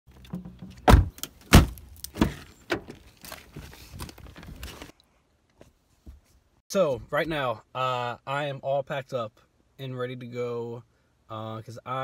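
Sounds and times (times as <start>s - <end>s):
car door opening and shutting: 0.2s - 3.1s.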